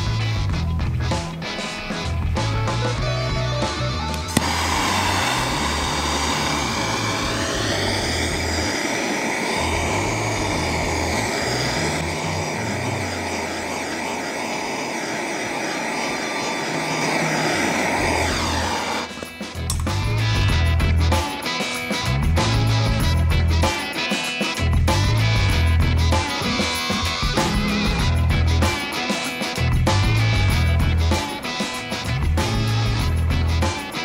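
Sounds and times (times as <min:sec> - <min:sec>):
background music with steady beat: 0:00.0 - 0:12.2, 0:19.1 - 0:34.0
rotary power tool sanding metal: 0:04.3 - 0:19.2.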